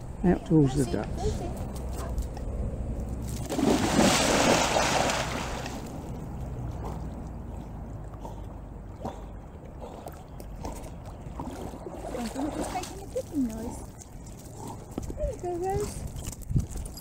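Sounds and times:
water sloshing: 3.1s - 16.9s
dog splashing into water: 3.3s - 6.3s.

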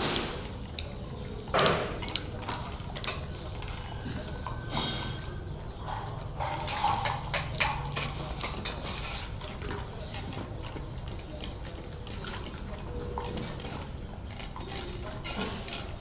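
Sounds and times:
dog bowls clinking and scraping: 0.0s - 16.0s.

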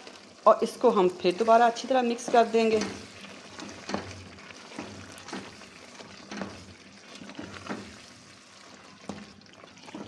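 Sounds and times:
low sizzle: 0.0s - 10.0s
spatula scraping curry in pot: 2.2s - 9.3s.

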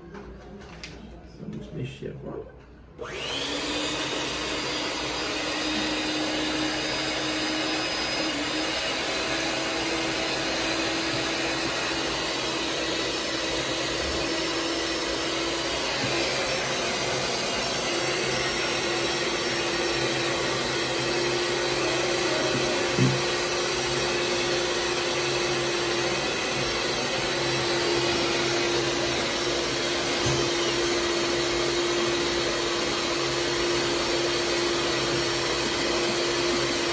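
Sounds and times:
motor or fan whirring: 3.0s - 36.9s
knock: 22.9s - 23.3s.

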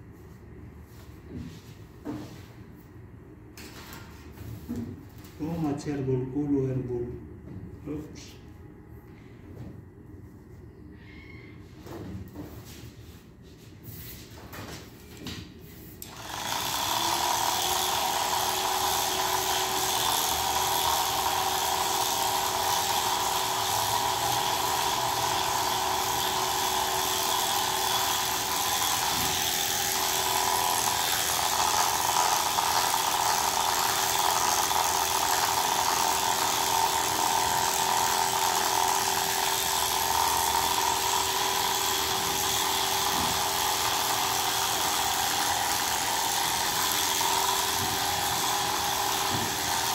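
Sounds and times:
electric clippers humming: 16.0s - 49.9s.

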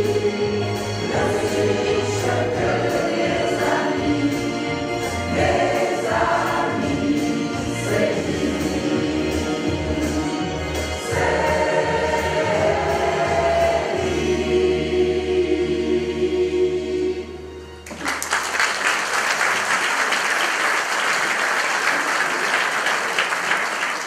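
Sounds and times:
choir singing: 0.0s - 17.8s
audience applauding: 17.8s - 24.0s.

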